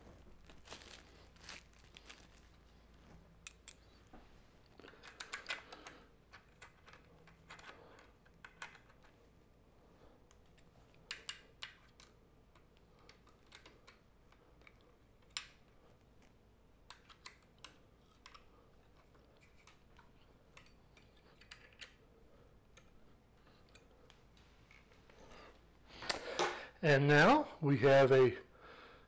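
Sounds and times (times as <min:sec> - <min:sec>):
clicks of small metal parts: 0:04.8 - 0:09.2, 0:10.3 - 0:22.0.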